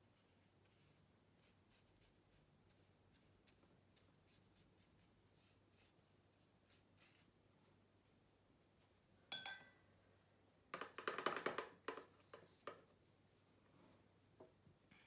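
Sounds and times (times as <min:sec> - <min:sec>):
painting tools clinking: 0:09.3 - 0:09.9.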